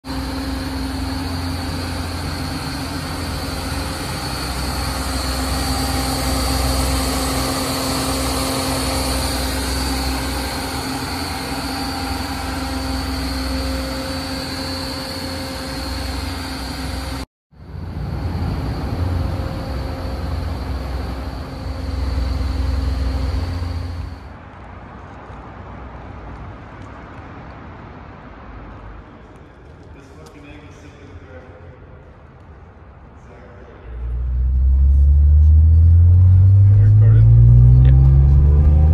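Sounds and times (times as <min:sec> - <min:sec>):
car engine idling with whine: 0:00.1 - 0:24.3, 0:33.2 - 0:38.9.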